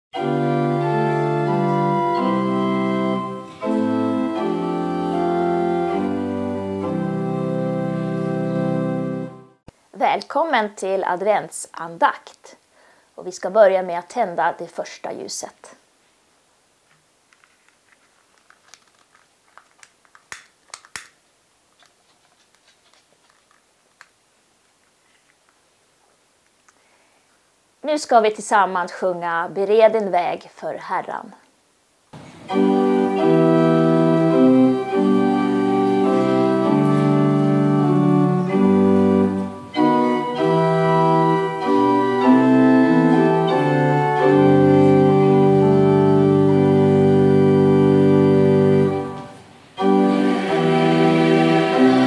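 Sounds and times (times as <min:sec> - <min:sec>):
organ playing sustained chords: 0:00.2 - 0:09.6, 0:32.4 - 0:52.0
rustling: 0:16.0 - 0:27.5.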